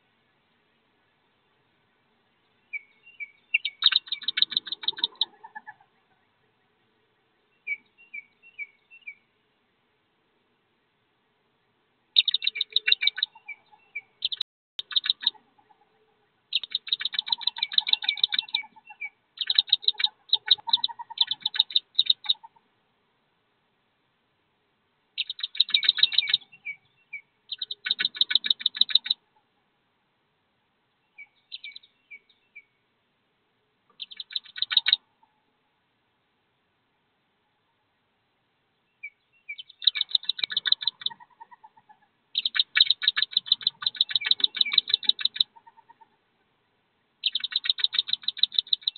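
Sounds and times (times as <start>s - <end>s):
ducklings peeping: 3.2s - 5.9s, 12.2s - 15.7s, 16.5s - 22.6s, 25.2s - 29.2s, 34.0s - 35.0s, 39.5s - 46.1s, 47.2s - 48.9s.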